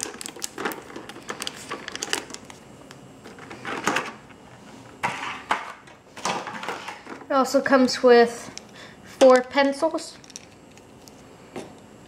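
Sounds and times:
foil packs rustling: 0:00.0 - 0:02.6.

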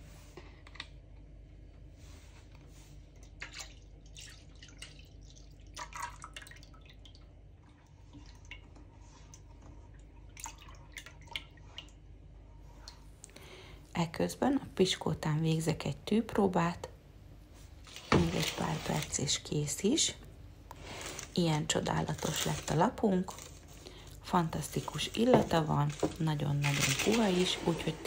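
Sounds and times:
dripping and splashing: 0:03.2 - 0:12.0
liquid pouring into pot: 0:03.4 - 0:08.8.

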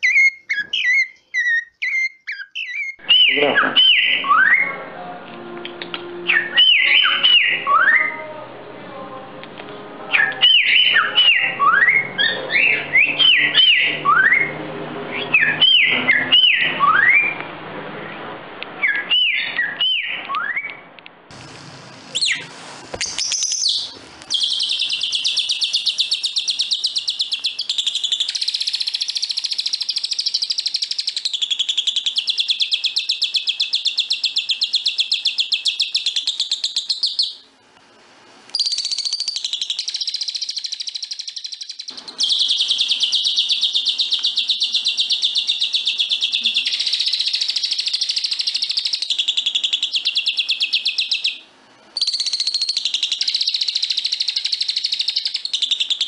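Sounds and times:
bird singing fast trill: 0:00.0 - 0:04.7, 0:06.3 - 0:08.2, 0:10.2 - 0:14.6, 0:15.2 - 0:17.4, 0:23.0 - 0:37.4, 0:38.6 - 0:51.4, 0:52.0 - 0:56.0
bird whistling clear phrases: 0:00.0 - 0:04.8, 0:06.2 - 0:08.3, 0:10.1 - 0:17.4, 0:18.8 - 0:20.9, 0:22.1 - 0:37.4, 0:38.6 - 0:51.4, 0:52.0 - 0:56.0.

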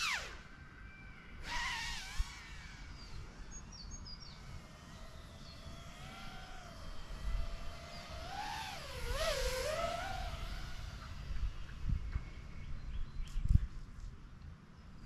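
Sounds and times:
quadcopter motors whining: 0:00.0 - 0:13.7.

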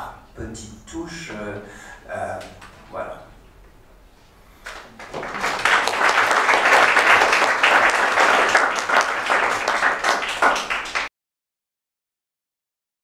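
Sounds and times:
audience applauding: 0:04.7 - 0:11.1.

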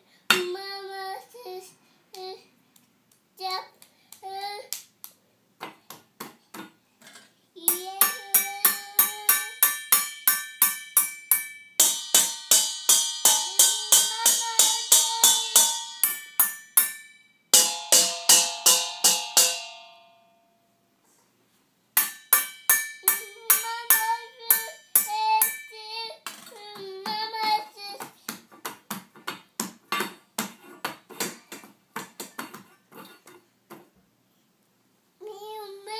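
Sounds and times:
child's sing-song voice: 0:00.0 - 0:02.5, 0:03.4 - 0:04.8, 0:07.5 - 0:09.6, 0:13.4 - 0:15.8, 0:23.0 - 0:28.4, 0:35.2 - 0:35.9
whisk striking metal bowls: 0:07.7 - 0:20.1, 0:22.0 - 0:25.8.

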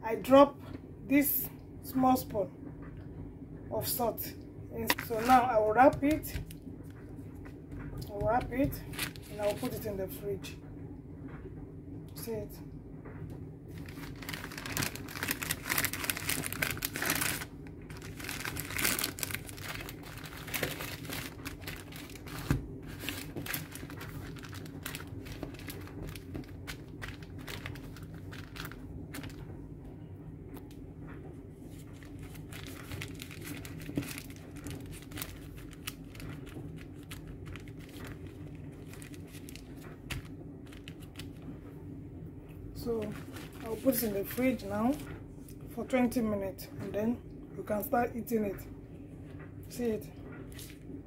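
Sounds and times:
baking paper crinkling: 0:04.8 - 0:06.5, 0:08.1 - 0:10.0, 0:13.7 - 0:29.5, 0:31.6 - 0:41.6, 0:42.8 - 0:45.1.

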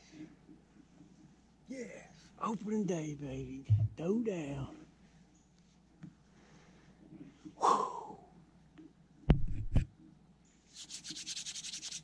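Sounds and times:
man exhaling loudly: 0:07.6 - 0:08.2
hand knocking camera: 0:09.3 - 0:09.9.

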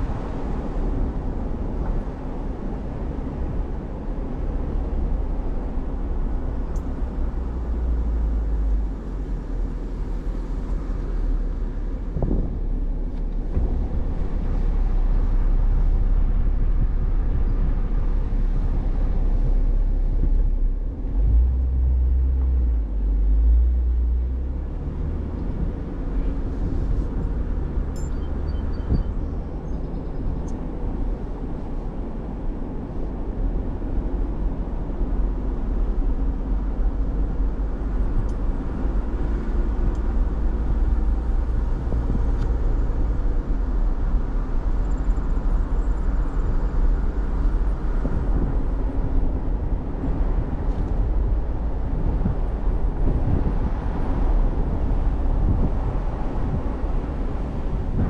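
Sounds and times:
tyre and engine rumble: 0:00.0 - 0:58.0.

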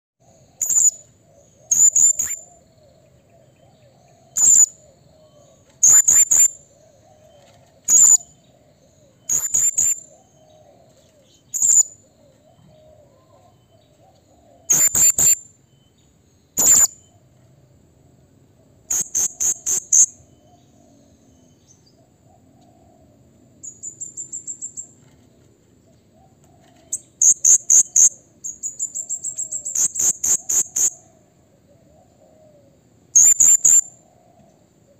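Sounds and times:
parrot high-pitched calls: 0:01.7 - 0:02.4, 0:09.3 - 0:10.1, 0:14.7 - 0:15.4, 0:16.6 - 0:17.0, 0:18.9 - 0:20.1, 0:33.2 - 0:33.9.

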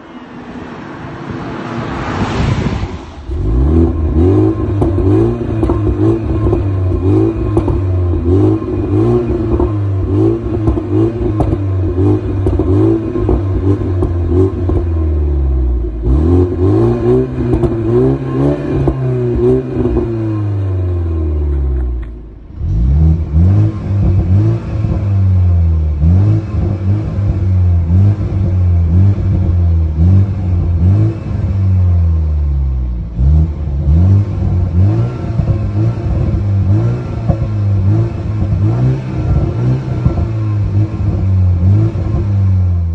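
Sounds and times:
car engine revving: 0:00.0 - 0:42.9
exhaust pops and crackles: 0:03.3 - 0:15.0, 0:17.3 - 0:20.2, 0:34.4 - 0:42.4.

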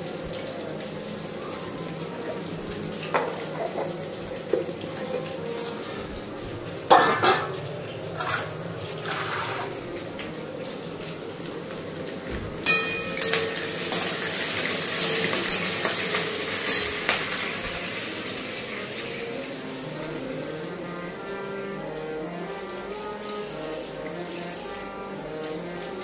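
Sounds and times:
vegetables frying in a pan: 0:00.0 - 0:26.0
utensils and dishes clinking: 0:02.1 - 0:09.7, 0:12.3 - 0:18.7.

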